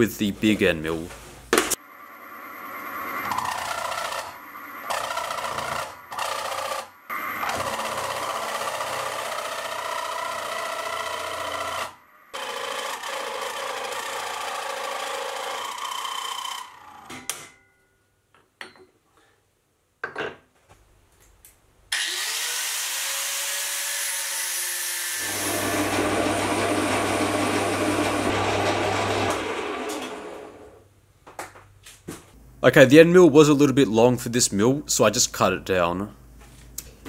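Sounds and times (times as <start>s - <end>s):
spindle whine: 1.8s - 7.7s
milling machine cutting steel: 2.2s - 16.7s, 22.0s - 30.7s.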